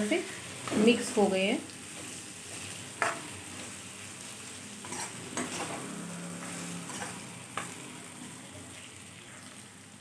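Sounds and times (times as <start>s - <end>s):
vegetables sizzling in pan: 0.0s - 10.0s
spoon knocking and scraping pan: 2.0s - 3.3s, 4.8s - 7.8s.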